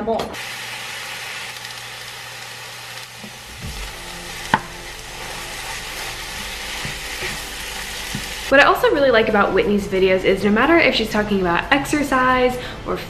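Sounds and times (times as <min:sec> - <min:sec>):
meat sizzling in a frying pan: 0:00.4 - 0:08.5.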